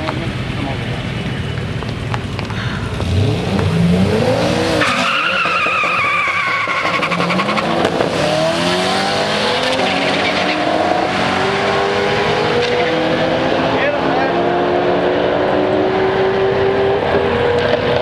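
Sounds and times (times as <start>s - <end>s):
car engine revving: 0.0s - 18.0s
tyres squealing: 4.8s - 7.8s.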